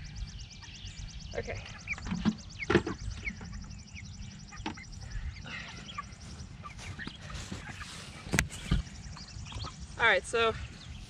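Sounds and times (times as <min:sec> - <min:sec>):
chickens cheeping: 0:00.0 - 0:11.0.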